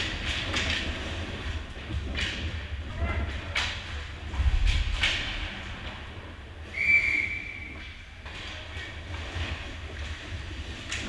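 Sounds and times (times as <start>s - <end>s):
low rumble of rink: 0.0s - 11.0s
referee's whistle: 6.7s - 7.8s.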